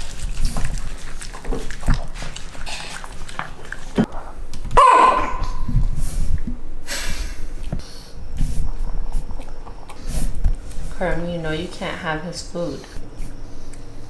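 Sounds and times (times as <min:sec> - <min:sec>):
dog yelping: 0:04.8 - 0:05.7
small dog crying: 0:04.8 - 0:05.7.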